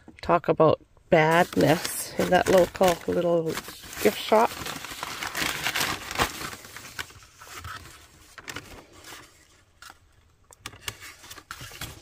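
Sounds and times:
paper bag rustling: 1.2 - 9.5.

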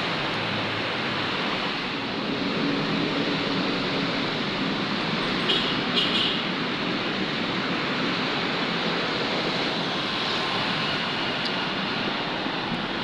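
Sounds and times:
cars and motorcycles passing: 0.0 - 13.0
road traffic rushing: 0.0 - 13.0.

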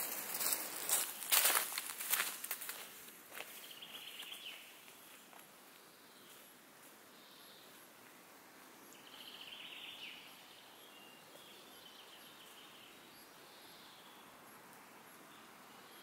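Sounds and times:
small birds singing: 3.4 - 6.5, 7.1 - 7.8, 8.7 - 16.0.

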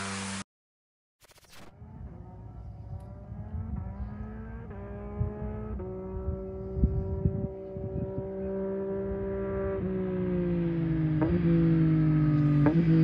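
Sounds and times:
motorcycle engine accelerating: 1.4 - 13.0
wind thumping on microphone: 5.1 - 8.4.

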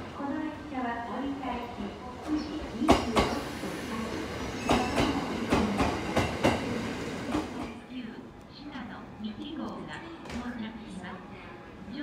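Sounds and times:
train wheels clacking: 4.6 - 7.8.

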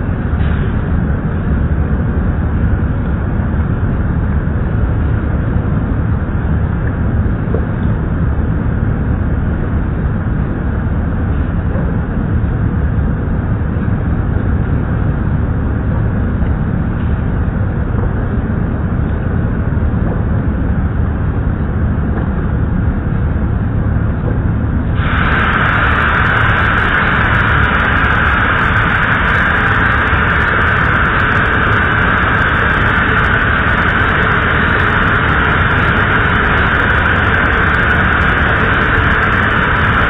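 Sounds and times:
machinery rumble: 0.0 - 40.0
steady hiss: 24.8 - 40.0.

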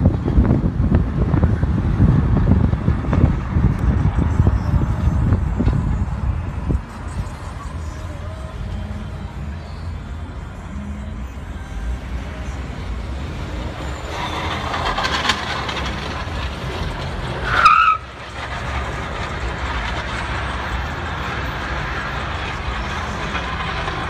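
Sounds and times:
vehicle road and wind noise: 0.0 - 24.0
high-pitched screech: 10.9 - 21.5.

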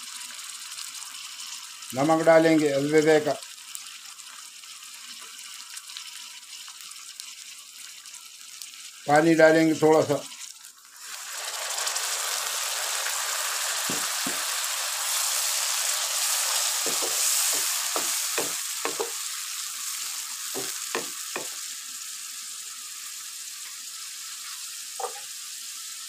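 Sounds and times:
vegetables sizzling in a wok: 0.0 - 26.0
wooden spatula knocking and scraping: 13.9 - 14.5, 16.8 - 19.2, 20.6 - 21.6, 25.0 - 25.2.

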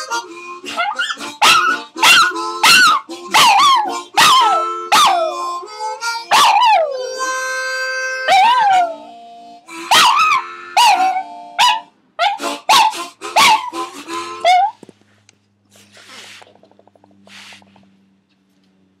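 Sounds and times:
music with held notes: 0.0 - 14.7
small dog howling: 0.8 - 5.4, 8.3 - 9.1
faint rustling: 14.8 - 18.7.

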